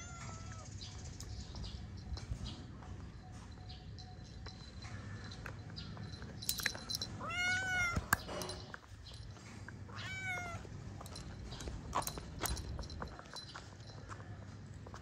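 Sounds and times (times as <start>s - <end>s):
cat meowing: 0.0s - 0.7s, 7.2s - 8.1s, 9.9s - 10.7s.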